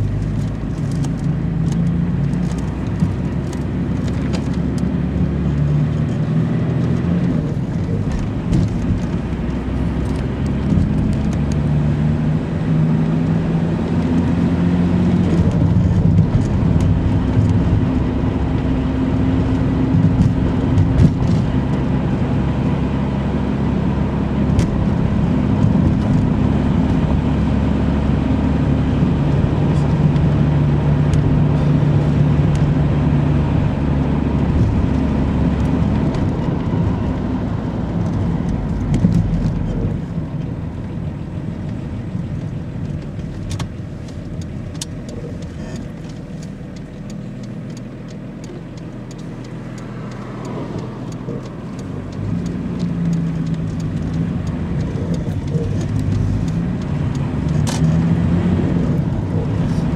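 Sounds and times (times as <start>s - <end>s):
car engine and tyre noise: 0.0s - 59.9s.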